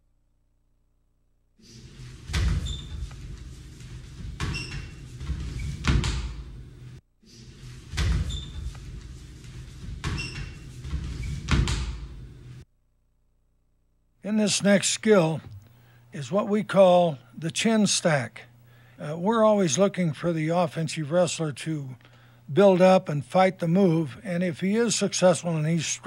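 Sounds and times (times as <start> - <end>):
wrestling shoes squeaking on mat: 2.3 - 3.3, 4.2 - 6.0, 8.0 - 8.8, 9.9 - 11.6.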